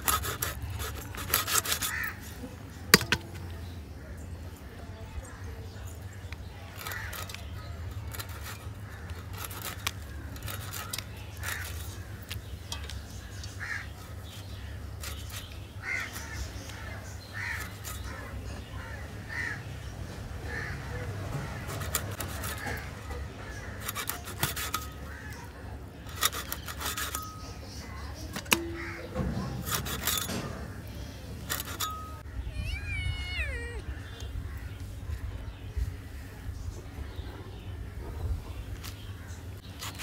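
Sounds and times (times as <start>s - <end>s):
fish scraped against blade: 0.0s - 2.2s, 23.6s - 25.3s, 26.0s - 27.5s, 29.5s - 30.4s
crows cawing: 1.8s - 2.3s, 13.5s - 14.0s, 18.8s - 19.7s, 20.4s - 21.0s.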